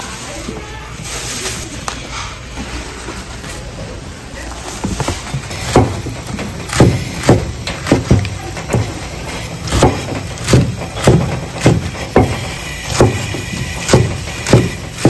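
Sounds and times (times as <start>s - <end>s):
knife chopping greens on wooden board: 5.5s - 15.0s.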